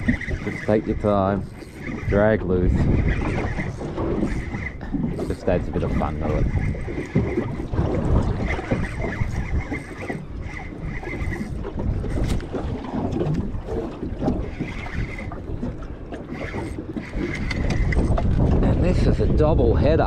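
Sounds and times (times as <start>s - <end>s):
fishing reel winding: 0.0s - 12.5s, 14.4s - 15.6s, 16.3s - 18.3s
water slapping against boat: 0.0s - 20.0s
wind buffeting microphone: 0.0s - 20.0s.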